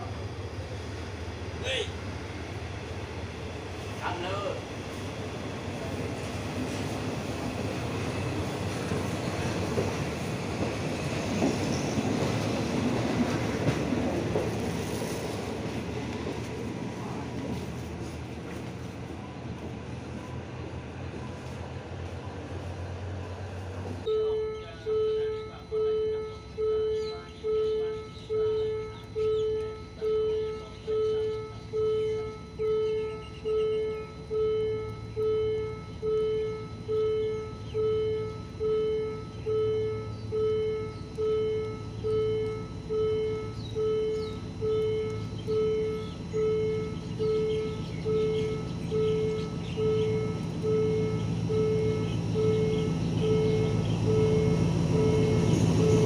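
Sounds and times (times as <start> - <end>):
birds chirping: 17.0 - 56.0
level crossing warning bell: 24.0 - 56.0
steady low hum: 24.0 - 56.0.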